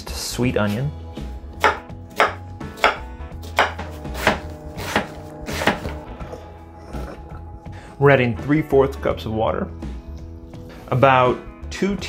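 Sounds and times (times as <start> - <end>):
knife chopping on wooden board: 1.6 - 6.1.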